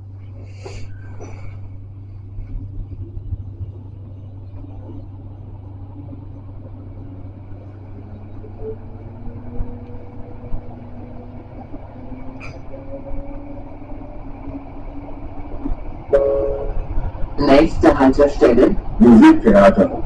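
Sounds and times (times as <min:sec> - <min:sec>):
traction motor whine: 0:00.0 - 0:19.2
low electrical hum: 0:00.0 - 0:20.0
tram doors clattering shut: 0:06.2 - 0:19.0.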